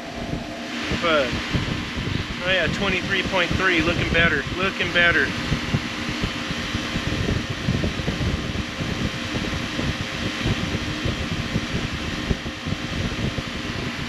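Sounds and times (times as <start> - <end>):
low hum: 0.0 - 7.8
condenser fan rushing: 0.0 - 14.0
wind buffeting microphone: 0.0 - 14.0.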